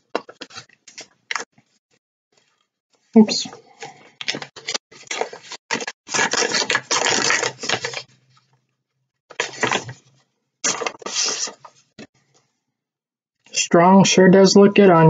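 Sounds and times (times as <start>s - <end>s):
paper rustling and crinkling: 0.0s - 1.8s, 3.8s - 8.5s, 9.3s - 12.1s.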